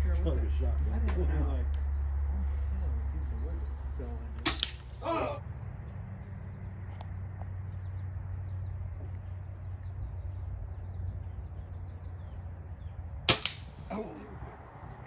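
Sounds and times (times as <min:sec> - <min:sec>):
faint birds chirping: 0:00.0 - 0:15.0
air rifle shot: 0:04.4 - 0:05.0, 0:13.3 - 0:14.0.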